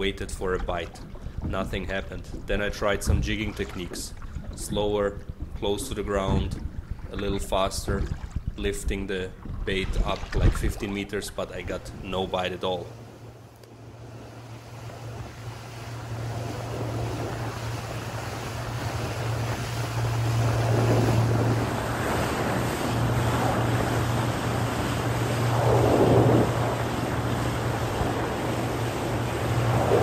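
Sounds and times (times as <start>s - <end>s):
motorboat engine hum: 0.0s - 30.0s
water rushing along hull: 0.0s - 30.0s
wind on microphone: 4.3s - 11.0s, 14.1s - 30.0s.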